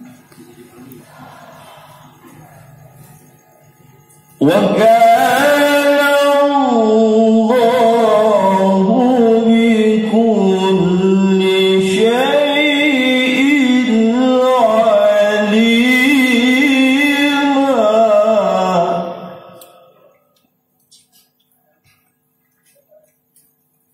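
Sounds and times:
man chanting over loudspeaker: 0.9s - 3.0s, 4.4s - 20.1s.

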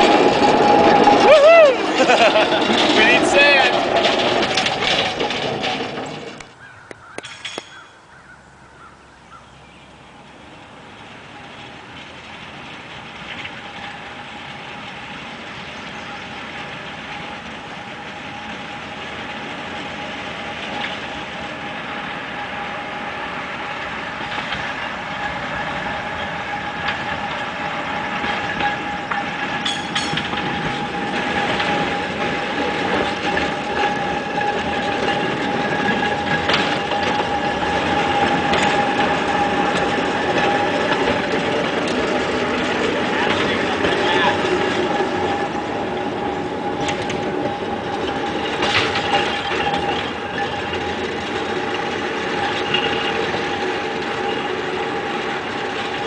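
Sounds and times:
steel wheels rumbling on rail: 0.0s - 56.0s.

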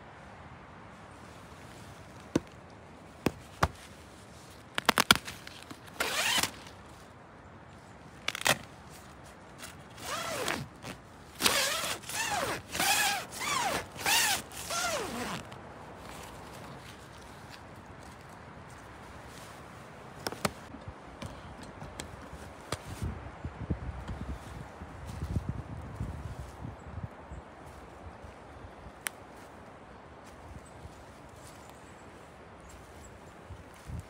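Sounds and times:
tent zipper rasping: 5.9s - 6.7s, 8.3s - 8.6s, 9.6s - 15.6s.

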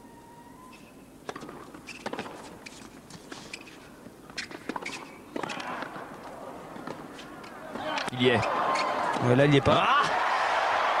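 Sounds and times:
shoe squeaks: 1.8s - 5.2s
crowd noise: 5.7s - 11.0s.

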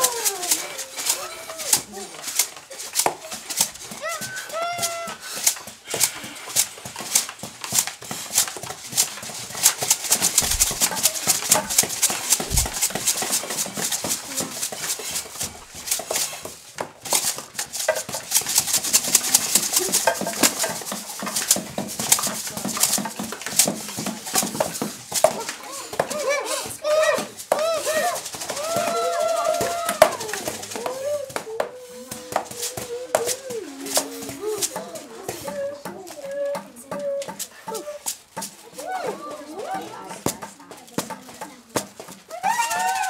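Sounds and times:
percussion clattering and clicking: 0.0s - 26.2s, 27.1s - 38.7s
low thuds: 10.4s - 11.8s, 12.4s - 13.1s.

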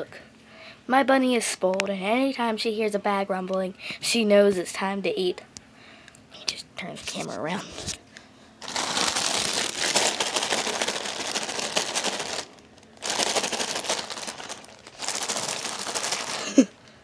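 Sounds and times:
plastic bag crinkling: 8.6s - 16.7s.

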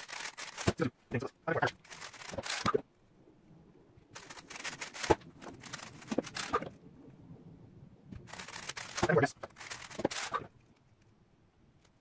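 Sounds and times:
cube clattering down: 4.2s - 6.8s, 8.2s - 10.5s
puzzle cube clicking: 4.2s - 6.8s, 8.2s - 10.6s.

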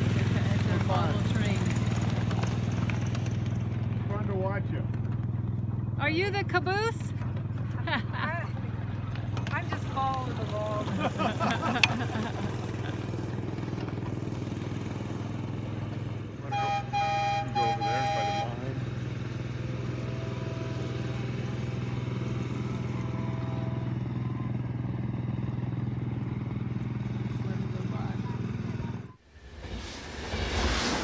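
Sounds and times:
small engine droning: 0.0s - 31.0s
train whistle blasts: 16.5s - 18.8s.

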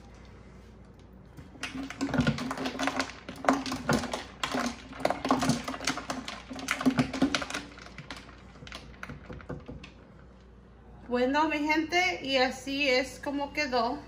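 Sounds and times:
ice cubes clinking: 1.6s - 9.8s.

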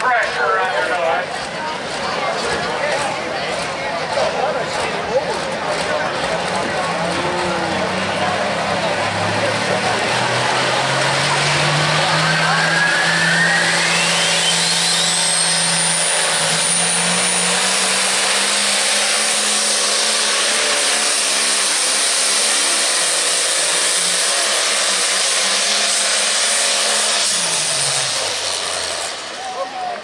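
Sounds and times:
tractor diesel engine at full throttle: 0.0s - 30.0s
turbo whine rising in pitch: 10.2s - 19.7s.

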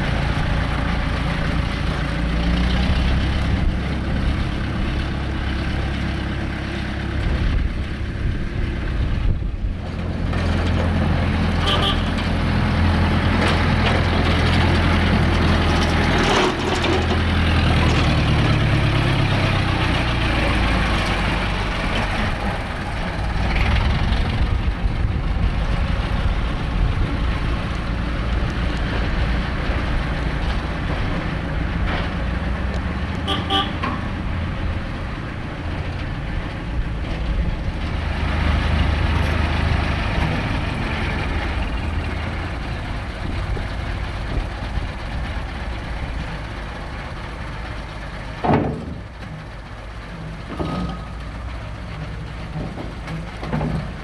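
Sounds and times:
diesel locomotive engines running: 0.0s - 54.0s
high horn toot: 11.6s - 12.2s, 33.2s - 33.8s.

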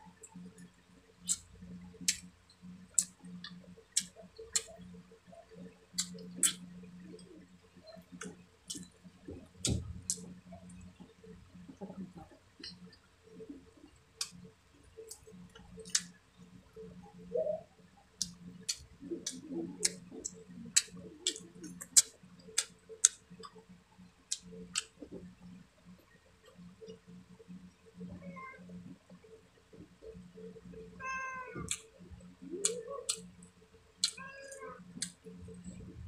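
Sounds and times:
faint low hum: 0.0s - 36.0s
chewing lip smacks: 3.0s - 4.7s, 6.0s - 6.6s, 18.2s - 23.6s.

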